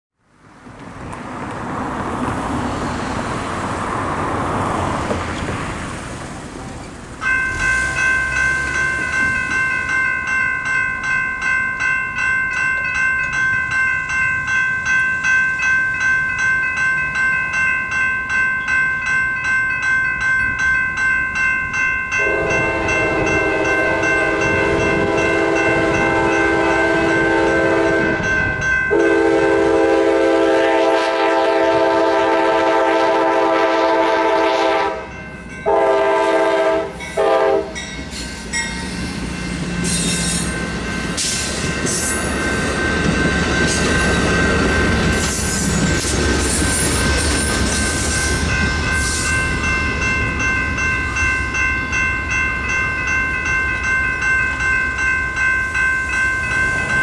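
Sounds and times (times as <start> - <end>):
railroad crossing warning bell: 1.4 - 57.0
locomotive air horn: 22.2 - 37.8.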